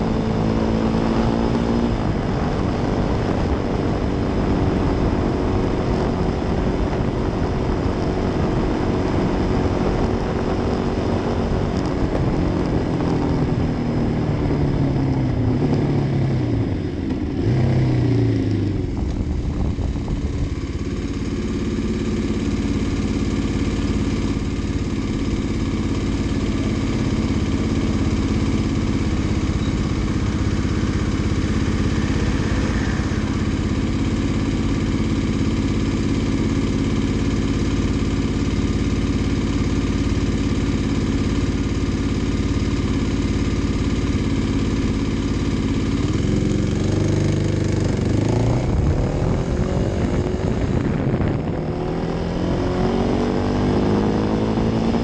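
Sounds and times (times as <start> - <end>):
motorcycle engine running: 0.0 - 55.0
wind on microphone: 18.7 - 20.9, 47.6 - 52.8.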